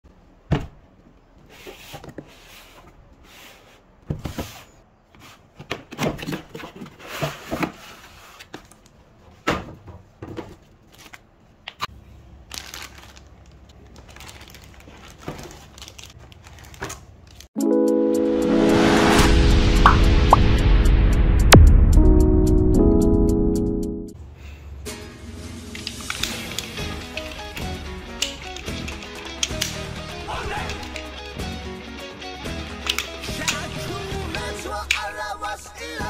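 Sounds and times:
plastic crinkling: 12.5s - 17.5s.

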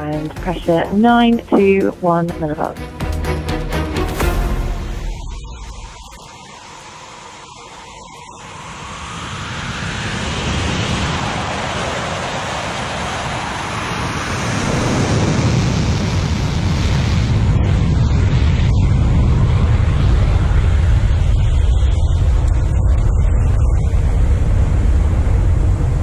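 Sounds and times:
jet engine roar: 4.2s - 26.0s
wind rushing on microphone: 8.5s - 26.0s.

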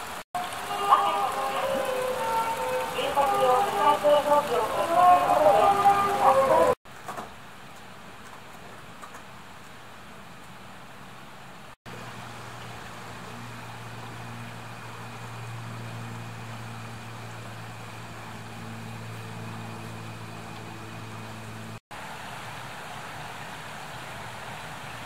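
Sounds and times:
rushing stream water: 0.0s - 6.8s, 9.2s - 25.0s
low engine hum: 8.8s - 25.0s.

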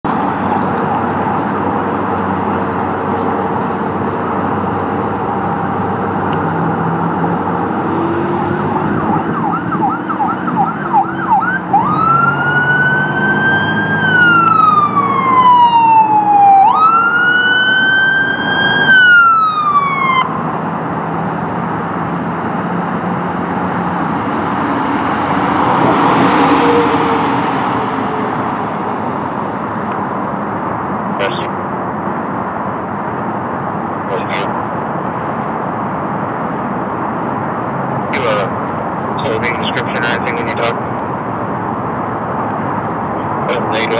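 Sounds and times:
traffic noise: 0.0s - 43.9s
electronic siren yelp and wail: 8.2s - 20.4s.

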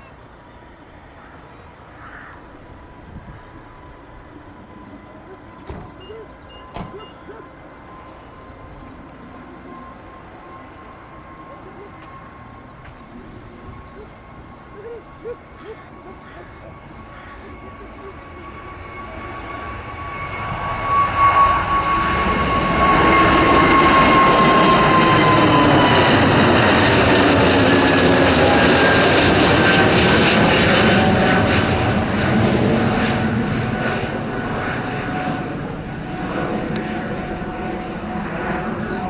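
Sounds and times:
jet airliner engine noise: 0.0s - 39.0s
jet engine whine dropping in pitch: 0.0s - 39.0s.

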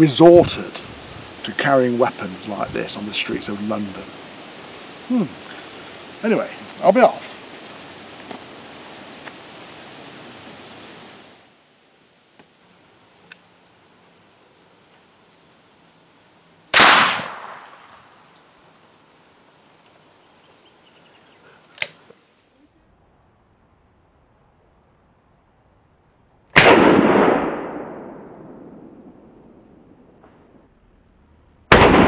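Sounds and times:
shotgun shot: 16.7s - 17.9s, 26.6s - 29.2s, 31.7s - 32.0s.

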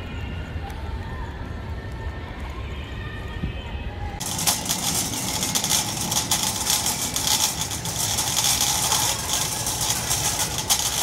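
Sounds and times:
shopping trolley rolling and rattling: 4.2s - 11.0s.

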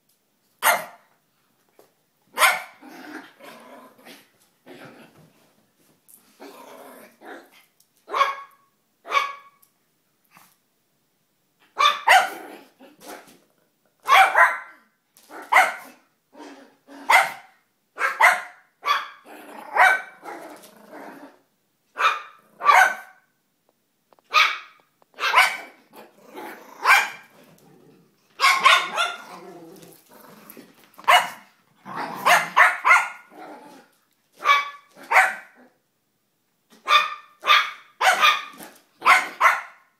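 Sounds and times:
small dogs barking: 0.6s - 1.1s, 2.3s - 2.8s, 8.1s - 9.6s, 11.7s - 12.5s, 14.0s - 16.0s, 17.0s - 20.4s, 22.0s - 23.2s, 24.3s - 25.8s, 26.8s - 27.3s, 28.4s - 29.5s, 31.0s - 33.3s, 34.4s - 35.7s, 36.8s - 39.9s.

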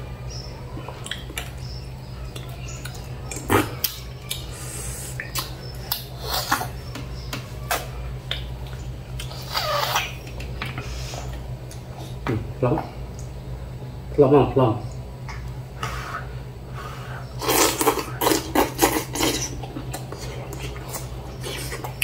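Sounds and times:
steady low hum: 0.0s - 22.0s
slurping noodles: 17.4s - 22.0s.

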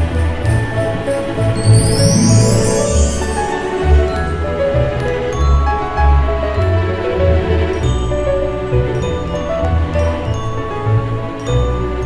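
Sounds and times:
background music melody: 1.0s - 7.1s.

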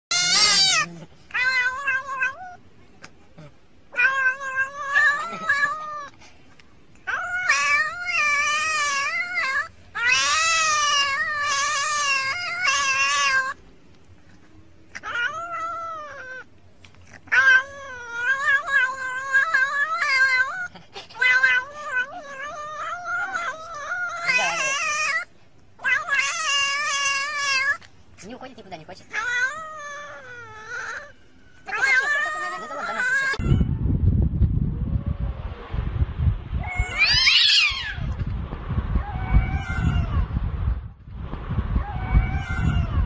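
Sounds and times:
cat meowing: 0.1s - 2.6s, 3.9s - 6.1s, 7.0s - 13.6s, 14.9s - 16.5s, 17.2s - 27.8s, 29.1s - 33.7s, 36.6s - 38.2s, 39.0s - 40.3s, 41.8s - 43.0s.

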